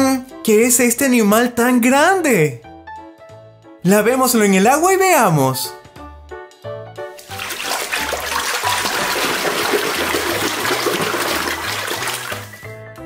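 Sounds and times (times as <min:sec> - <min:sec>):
light background music: 0:00.0 - 0:13.0
water splashing into a tub: 0:07.2 - 0:12.7.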